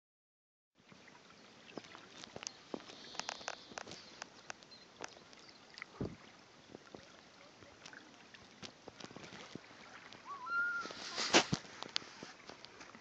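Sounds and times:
stream trickling over stones: 0:00.8 - 0:13.0
water plinks and clicks: 0:01.7 - 0:07.1.

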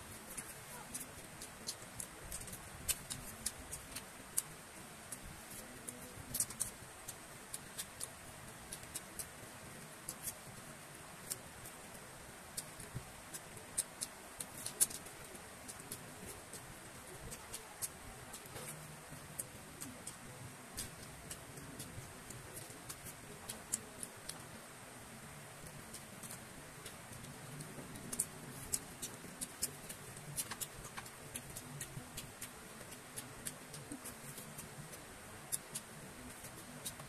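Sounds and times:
mouth clicks and smacks: 0:25.8 - 0:37.0.

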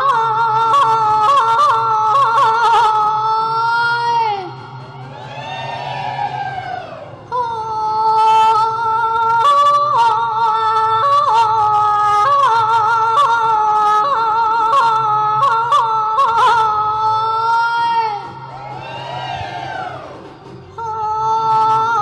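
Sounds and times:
woman singing through a microphone: 0:00.0 - 0:04.8, 0:07.3 - 0:18.5, 0:20.7 - 0:22.0.

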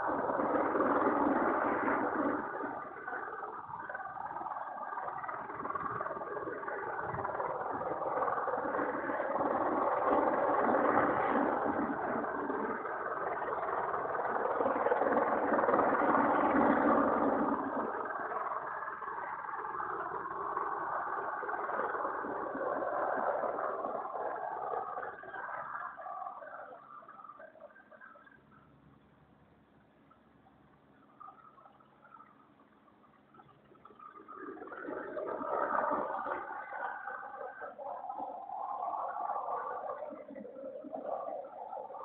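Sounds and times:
helicopter hovering: 0:00.0 - 0:25.5.

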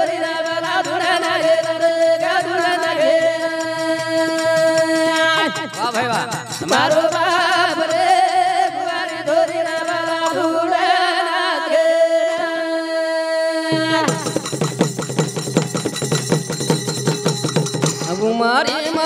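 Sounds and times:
drum beating: 0:04.5 - 0:07.6, 0:13.7 - 0:19.0
man singing: 0:05.2 - 0:08.0, 0:18.0 - 0:19.0
small hand cymbals: 0:13.7 - 0:19.0.

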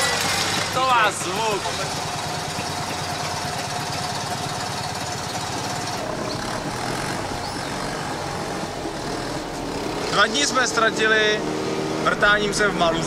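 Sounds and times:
small car engine putter: 0:00.0 - 0:10.2.

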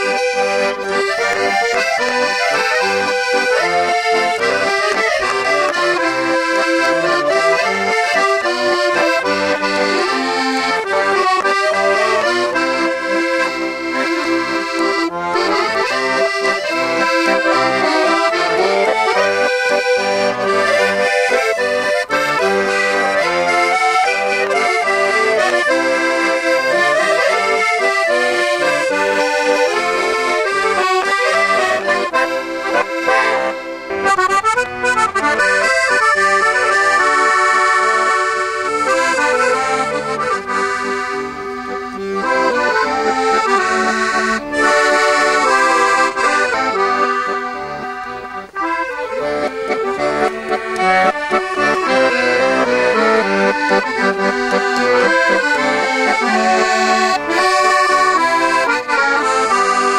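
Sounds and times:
accordion playing a traditional tune: 0:00.0 - 0:59.9.

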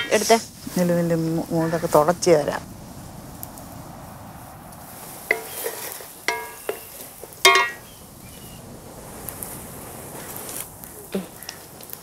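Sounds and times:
oil sizzling: 0:00.0 - 0:12.0
utensils striking wok: 0:05.3 - 0:07.9.

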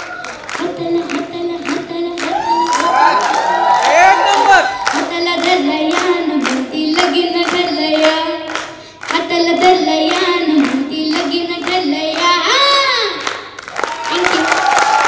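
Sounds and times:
girl singing into a microphone: 0:00.0 - 0:03.0, 0:04.7 - 0:14.6
rhythmic clapping: 0:00.0 - 0:15.0.

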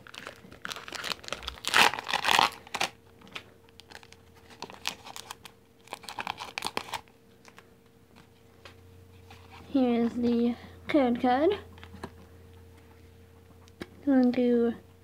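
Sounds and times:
foil pack ripping: 0:00.0 - 0:03.0, 0:03.8 - 0:07.1
wrapper and cards crinkling: 0:00.0 - 0:03.0, 0:03.8 - 0:07.6.

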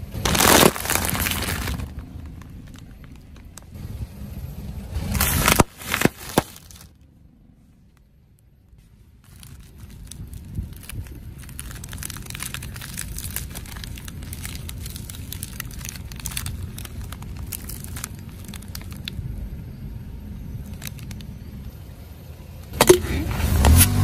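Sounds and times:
plastic wrapper crinkling: 0:00.0 - 0:03.8, 0:05.1 - 0:07.0, 0:08.9 - 0:19.8, 0:20.4 - 0:21.6
wafer crackling: 0:00.0 - 0:03.8, 0:05.0 - 0:06.9, 0:08.8 - 0:19.2
car tyre rolling on asphalt: 0:00.0 - 0:07.1, 0:08.5 - 0:24.0.

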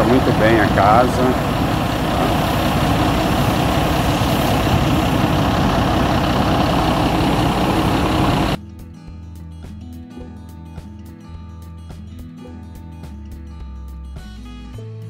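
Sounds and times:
diesel engine idling: 0:00.0 - 0:08.6.

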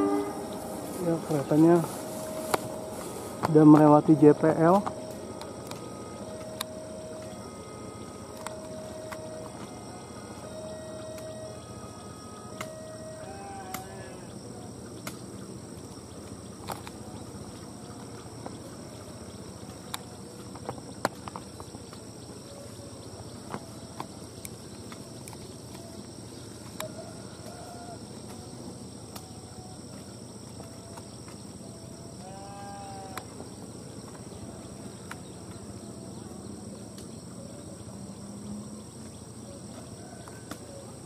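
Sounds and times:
faint high hum: 0:00.0 - 0:41.0
steady background hiss: 0:00.0 - 0:41.0.

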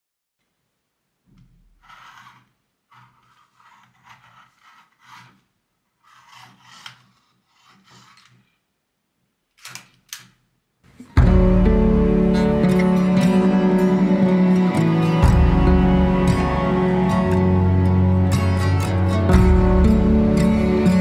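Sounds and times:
pencil sharpener grinding: 0:01.7 - 0:08.5.

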